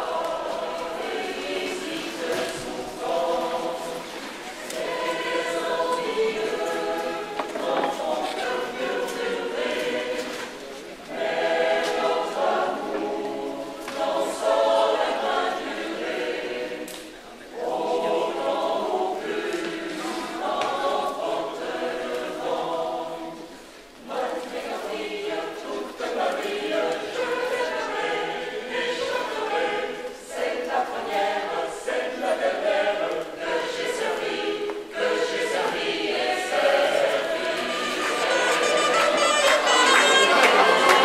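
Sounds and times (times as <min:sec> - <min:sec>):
mixed choir singing: 0:00.0 - 0:41.0.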